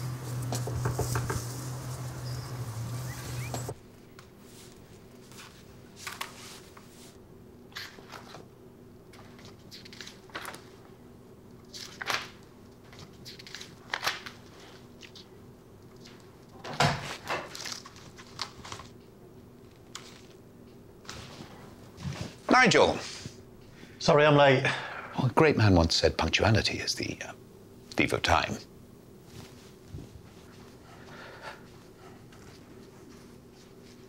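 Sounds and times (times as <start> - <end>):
low hum: 0.0 - 3.8
paper booklet pages rustling: 4.4 - 7.2, 17.5 - 19.0, 19.6 - 20.4.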